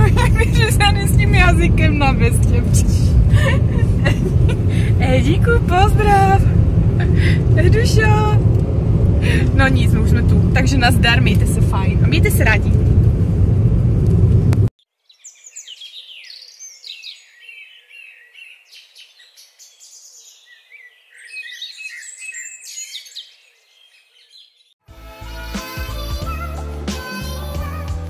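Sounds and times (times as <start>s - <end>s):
car cabin road noise: 0.0s - 14.7s
birds chirping and singing: 14.8s - 24.7s
music: 24.8s - 28.0s.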